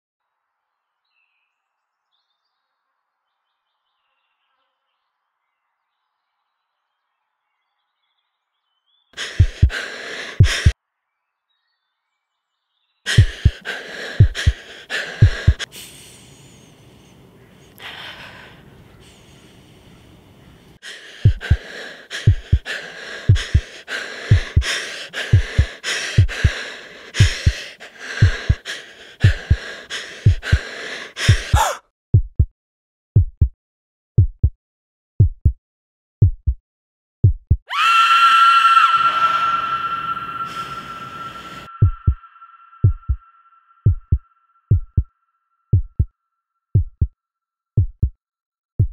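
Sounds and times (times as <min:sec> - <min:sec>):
heartbeat thumps: 0:09.2 - 0:09.8, 0:10.4 - 0:10.8, 0:13.1 - 0:13.6, 0:14.2 - 0:14.6, 0:15.2 - 0:15.7, 0:21.2 - 0:22.7, 0:23.3 - 0:23.7, 0:24.3 - 0:24.7, 0:25.3 - 0:26.6, 0:27.2 - 0:27.6, 0:28.2 - 0:28.6, 0:29.2 - 0:29.6, 0:30.2 - 0:30.6, 0:31.2 - 0:32.5, 0:33.2 - 0:33.6, 0:34.2 - 0:34.6, 0:35.2 - 0:35.6, 0:36.2 - 0:36.6, 0:37.2 - 0:37.7, 0:41.7 - 0:42.2, 0:42.8 - 0:43.2, 0:43.8 - 0:45.1, 0:45.7 - 0:46.1, 0:46.8 - 0:47.1, 0:47.8 - 0:48.2
loud breathing and gasps: 0:09.2 - 0:10.8, 0:13.1 - 0:31.8, 0:37.7 - 0:43.2.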